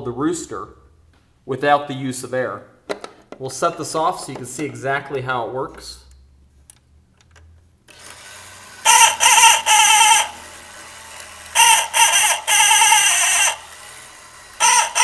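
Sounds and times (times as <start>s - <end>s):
mechanical rooster crow: 8.8s - 15.0s.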